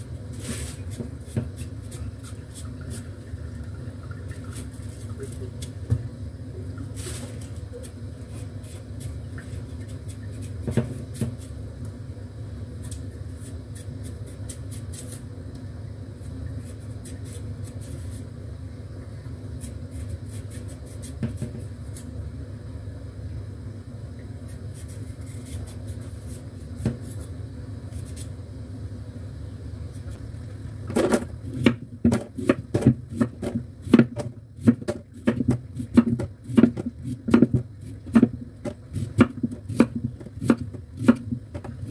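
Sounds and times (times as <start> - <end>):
blade peeling radish: 7.0 - 11.6, 12.8 - 15.3, 16.2 - 18.2, 19.6 - 22.2, 24.4 - 28.4
knife chopping on wooden board: 30.9 - 41.9.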